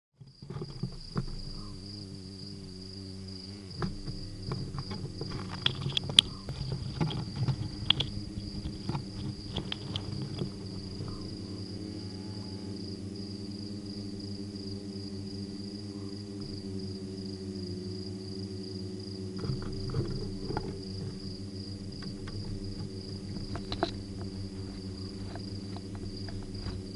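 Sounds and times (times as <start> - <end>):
high insect trill: 0.2 - 26.9
low steady hum: 0.2 - 26.9
claws scratching on microphone: 3.8 - 11.1, 19.4 - 26.9.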